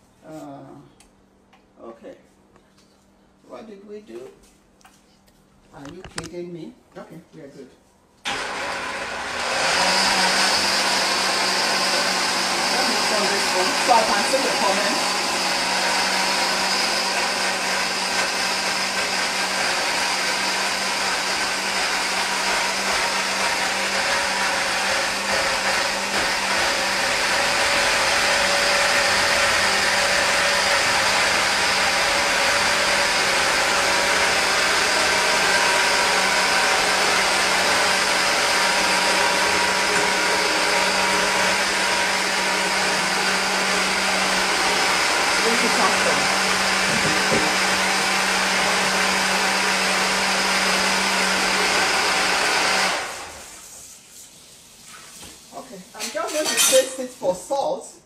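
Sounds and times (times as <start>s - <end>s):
blender grinding: 8.3s - 53.7s.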